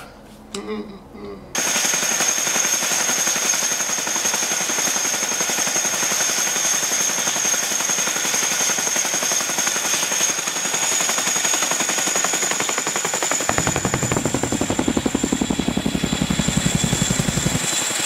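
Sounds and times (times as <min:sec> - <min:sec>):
helicopter rotor blade chop: 0:01.6 - 0:18.0
high turbine whine: 0:01.6 - 0:18.0.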